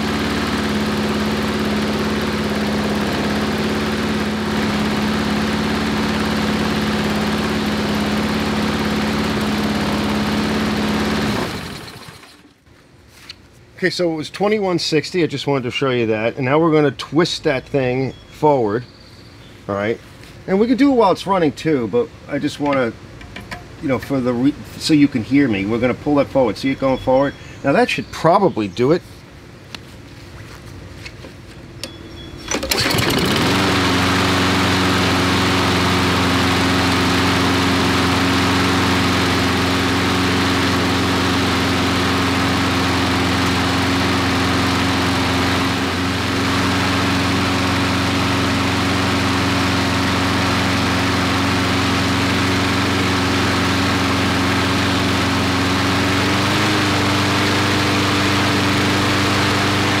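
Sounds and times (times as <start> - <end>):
lawnmower engine running: 0.0 - 12.7, 22.3 - 27.0, 31.7 - 60.0.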